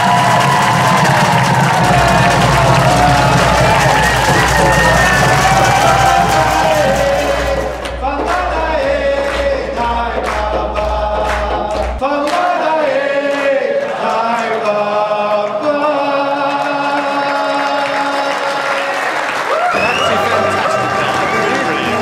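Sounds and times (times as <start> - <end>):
choir singing: 0.0 - 18.2, 19.8 - 22.0
rhythmic hand-clapping: 0.0 - 22.0
low bass sound: 0.1 - 12.0.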